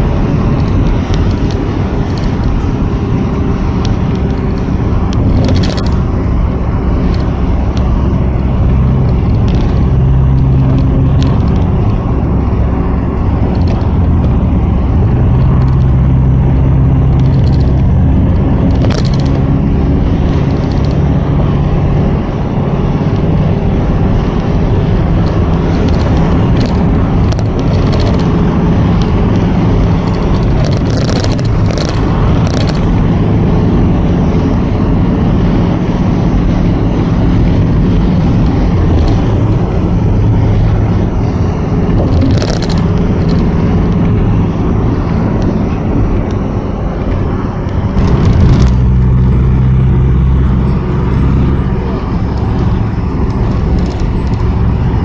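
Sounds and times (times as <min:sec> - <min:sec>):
bus engine drone: 0:00.0 - 0:55.0
tyre and road noise: 0:00.0 - 0:55.0
short clicks and rattles: 0:03.6 - 0:06.2, 0:13.2 - 0:19.4, 0:25.2 - 0:33.0, 0:37.9 - 0:44.4, 0:52.0 - 0:54.8.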